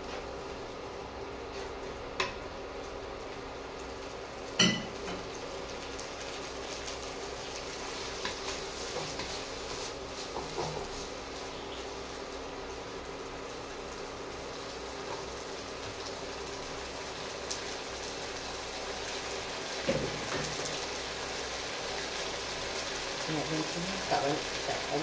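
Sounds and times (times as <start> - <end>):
onions frying in a wok: 0.0 - 25.0
spatula scraping wok: 7.8 - 11.9.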